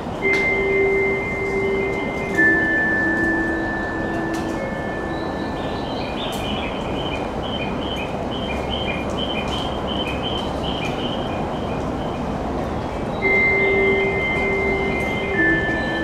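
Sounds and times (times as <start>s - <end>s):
high bird-like chirps: 4.6s - 11.4s.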